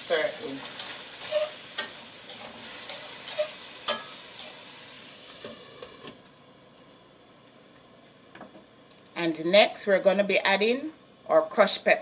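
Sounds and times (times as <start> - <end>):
food sizzling in a frying pan: 0.0 - 6.3.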